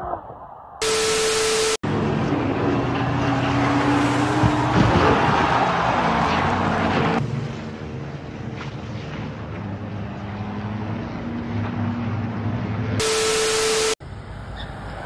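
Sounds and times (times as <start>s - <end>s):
loud rushing noise with steady tone: 0.8s - 1.8s, 13.0s - 14.0s
race car engines running: 0.8s - 15.0s.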